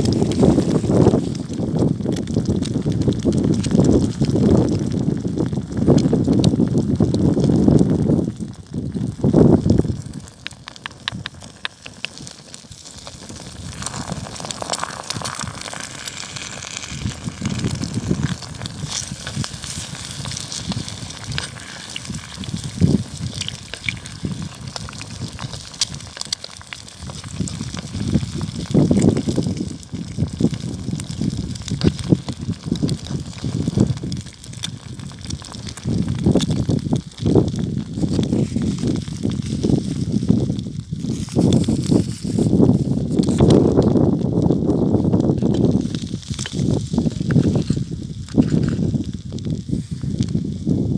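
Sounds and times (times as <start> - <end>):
eggs sizzling in a pan: 0.0 - 50.9
wood fire crackling: 0.0 - 50.9.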